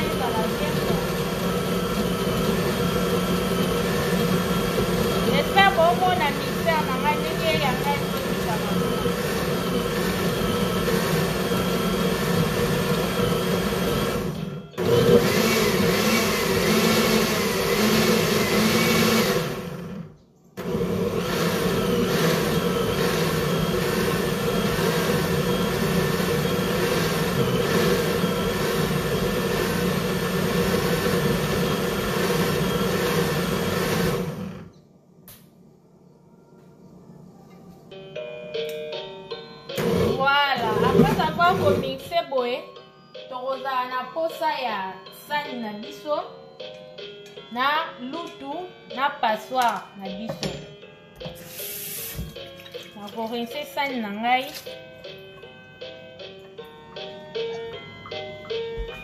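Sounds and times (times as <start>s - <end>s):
blender running: 0.0s - 34.7s, 39.8s - 42.0s.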